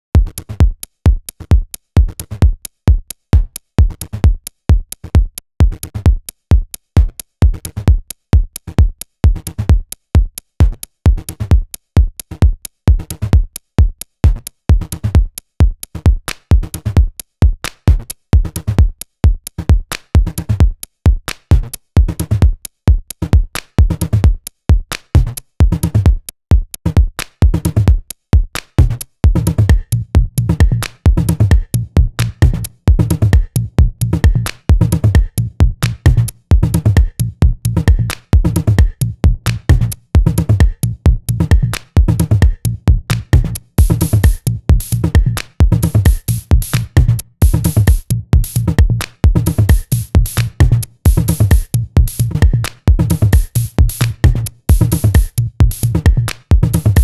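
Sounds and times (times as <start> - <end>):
drum machine kick beat: 0.2 - 57.0
electronic dance music: 41.5 - 57.0.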